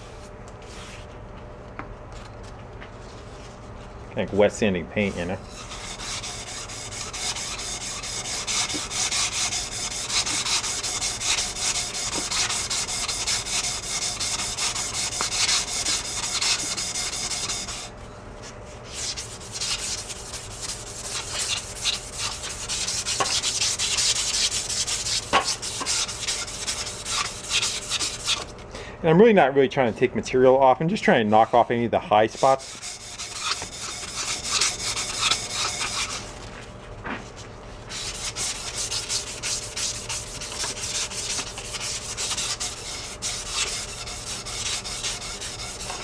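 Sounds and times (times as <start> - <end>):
abrasive strip rubbing metal: 5.1 - 17.9, 18.9 - 28.5, 31.3 - 36.3, 37.9 - 46.0.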